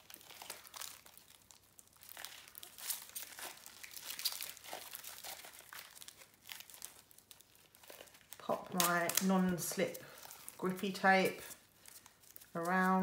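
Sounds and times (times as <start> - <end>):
plastic film crinkling: 0.0 - 13.0.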